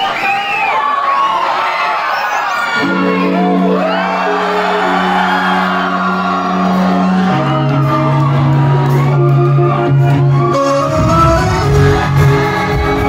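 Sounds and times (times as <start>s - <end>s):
crowd screaming and whooping: 0.0s - 13.0s
live band holding a chord: 2.8s - 13.0s.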